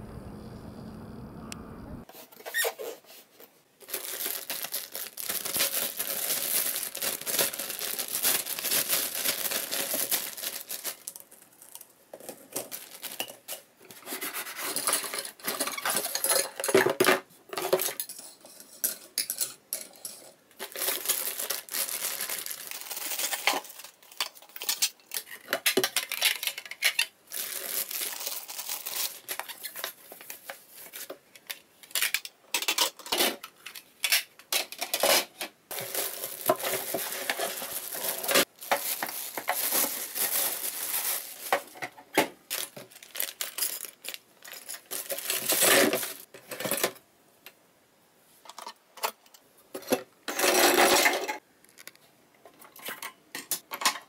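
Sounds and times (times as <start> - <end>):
plastic bags crinkling: 3.8 - 13.7, 20.6 - 34.9, 35.7 - 46.3
plastic pieces clattering on wood: 14.3 - 47.0.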